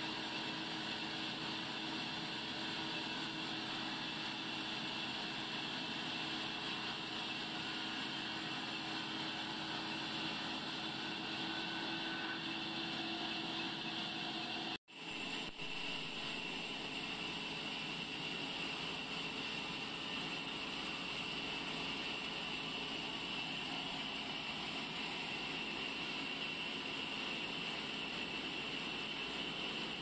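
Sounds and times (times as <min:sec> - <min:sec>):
band saw sawing timber: 0:01.9 - 0:14.8.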